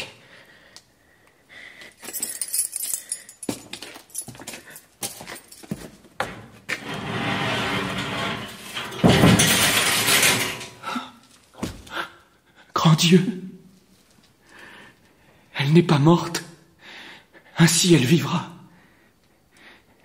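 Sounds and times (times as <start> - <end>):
keys jangling: 1.8 - 6.0
steady grinding noise: 6.7 - 10.7.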